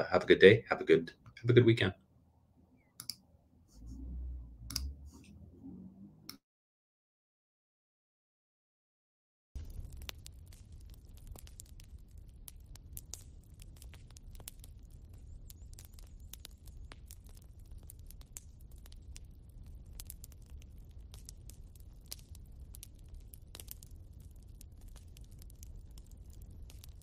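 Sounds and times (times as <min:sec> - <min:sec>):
low steady rumble: 0:03.6 - 0:06.4, 0:09.6 - 0:27.0
fire crackling: 0:09.6 - 0:27.0.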